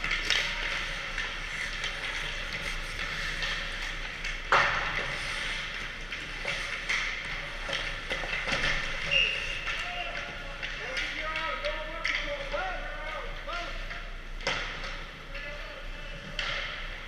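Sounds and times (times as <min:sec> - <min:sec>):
skate blades scraping ice: 0:00.0 - 0:11.0
sticks clacking on pucks: 0:00.0 - 0:12.9, 0:13.9 - 0:17.0.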